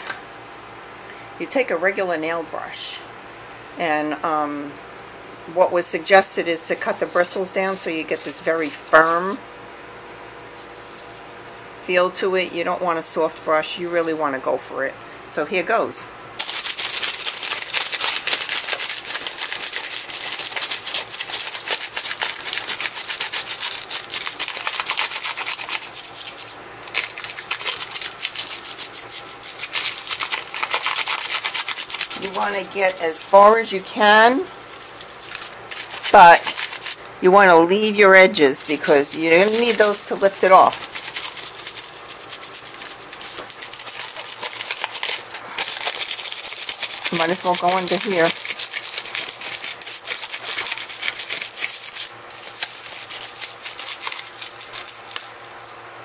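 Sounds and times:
brush scrubbing over foil: 0:05.9 - 0:09.5, 0:10.4 - 0:12.2, 0:16.4 - 0:37.0, 0:37.8 - 0:55.8
plastic film crinkling: 0:16.4 - 0:37.0, 0:38.4 - 0:55.8.

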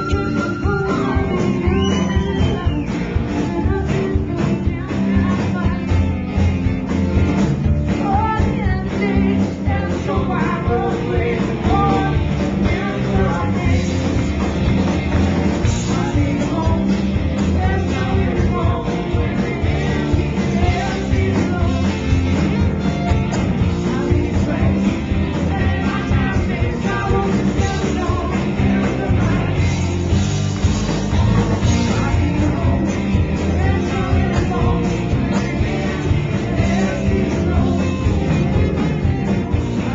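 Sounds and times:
singer's vocal: 0:00.0 - 0:06.0, 0:07.9 - 0:14.2, 0:15.8 - 0:22.4, 0:23.6 - 0:30.0, 0:31.1 - 0:38.6
drum kit: 0:00.0 - 0:39.9
electric guitars: 0:00.0 - 0:39.9.

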